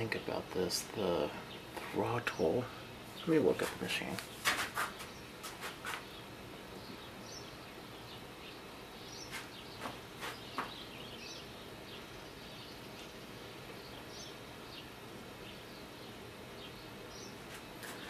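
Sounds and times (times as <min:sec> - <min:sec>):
faint steady hiss: 0:00.0 - 0:18.0
small birds chirping: 0:00.0 - 0:18.0.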